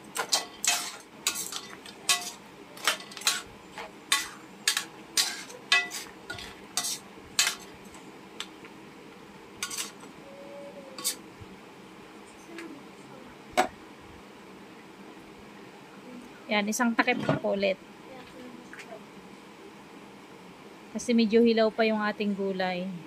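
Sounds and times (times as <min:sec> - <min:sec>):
utensil scraping metal wok: 0:00.1 - 0:07.8, 0:09.6 - 0:10.1, 0:11.0 - 0:11.2.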